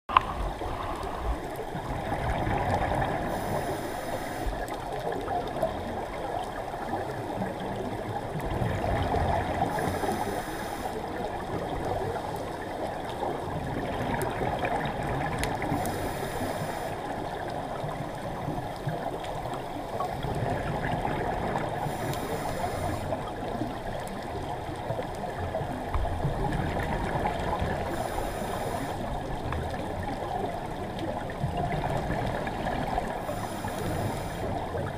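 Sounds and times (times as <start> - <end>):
underwater water noise: 0.1 - 34.9
regulator hiss on inhale: 3.2 - 4.6, 9.6 - 11.2, 15.7 - 17.1, 21.8 - 23.3, 27.8 - 29.1, 33.2 - 34.6.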